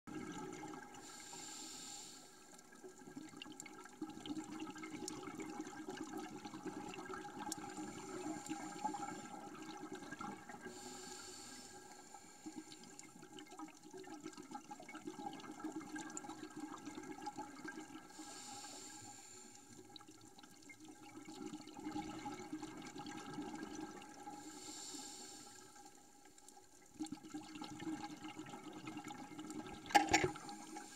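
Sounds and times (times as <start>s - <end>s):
regulator breathing hiss: 1.0s - 2.4s, 10.7s - 12.8s, 18.1s - 19.6s, 24.4s - 25.7s.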